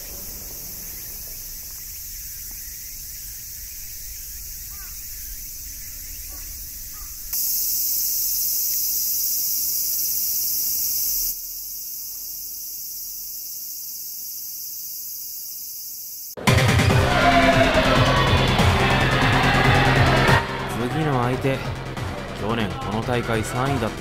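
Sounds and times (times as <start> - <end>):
cicada chorus drone: 0.0 - 16.4, 17.0 - 23.6
music: 16.4 - 24.0.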